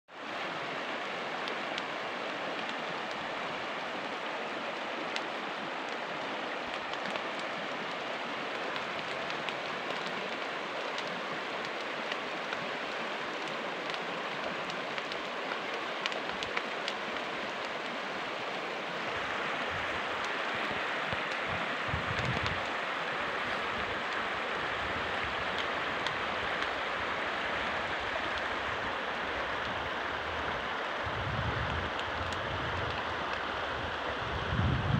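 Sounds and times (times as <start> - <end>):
stream running over stones: 0.1 - 34.9.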